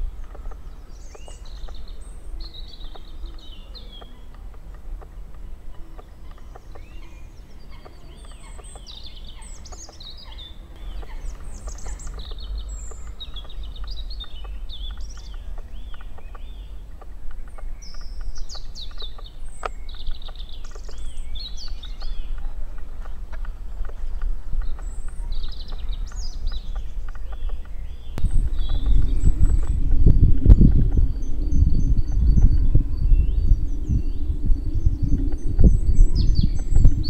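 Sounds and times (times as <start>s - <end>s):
songbirds singing: 0.0s - 37.0s
steady low rumble: 0.0s - 37.0s
faint clicks: 0.2s - 7.2s, 7.8s - 29.9s.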